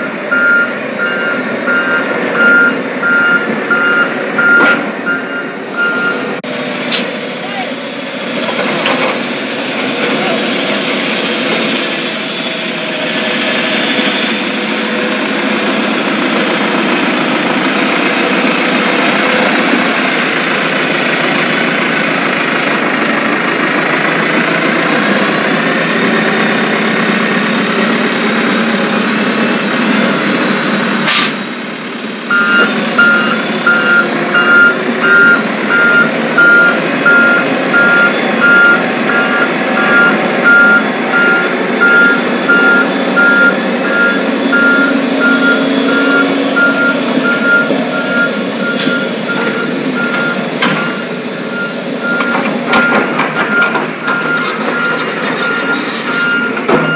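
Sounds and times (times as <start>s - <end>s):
reversing alarm beeping: 0.0s - 6.4s, 32.3s - 56.9s
roller engine and drum running: 0.0s - 56.9s.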